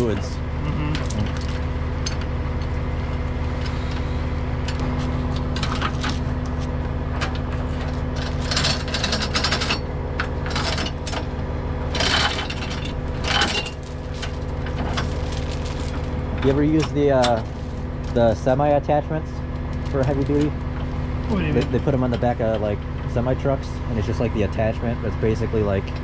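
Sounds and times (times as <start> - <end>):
truck engine idling: 0.0 - 26.0
metal chains clinking and rattling: 1.0 - 2.3, 5.5 - 6.6, 7.2 - 19.0, 19.6 - 20.8.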